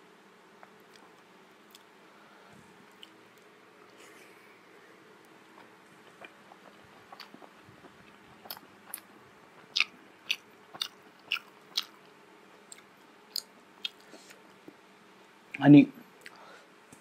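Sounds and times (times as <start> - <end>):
chewing food: 5.2 - 14.8.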